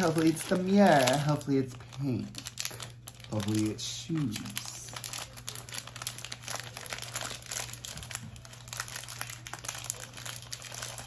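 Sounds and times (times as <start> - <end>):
low steady hum: 0.0 - 11.0
wrapper crinkling: 0.0 - 11.0.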